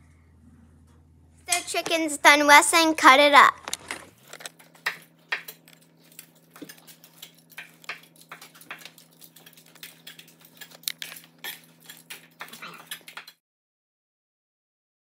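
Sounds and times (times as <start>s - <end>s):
faint low hum: 0.0s - 4.5s.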